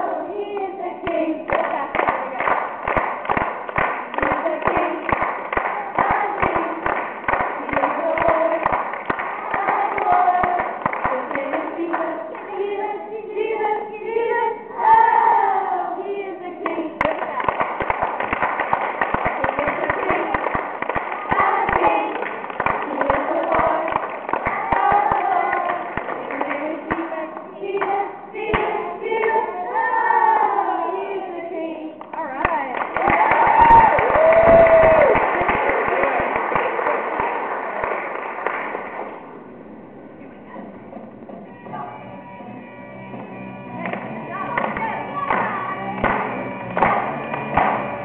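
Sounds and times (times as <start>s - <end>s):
children clapping: 1.5s - 12.5s, 16.6s - 27.1s, 32.0s - 39.2s, 43.8s - 48.0s
children singing: 4.0s - 17.5s, 21.0s - 32.0s.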